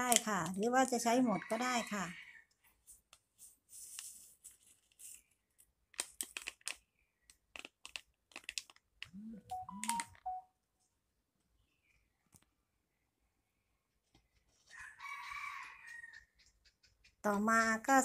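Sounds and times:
plastic sachet crinkling: 3.8 - 9.1, 9.7 - 10.2
small crackly clicks: 5.9 - 9.1.

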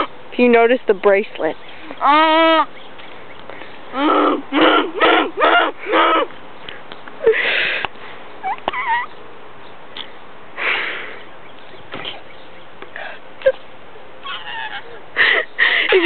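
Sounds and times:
person's squeaky chirp: 1.8 - 2.7, 8.4 - 9.1, 14.2 - 15.0
person hissing breathily: 7.2 - 7.9.

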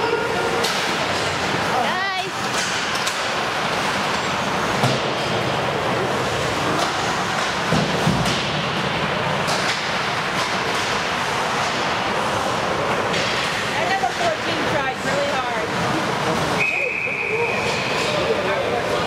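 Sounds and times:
hockey sticks and puck clacking: 0.6 - 1.6, 2.4 - 5.2, 6.4 - 15.1, 17.5 - 18.4.

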